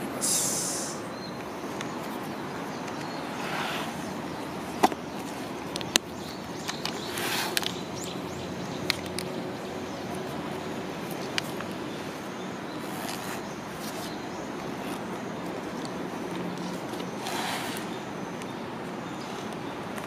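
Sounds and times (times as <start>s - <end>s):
background hiss: 0.0s - 19.7s
rustling of leather and paper: 10.0s - 18.0s.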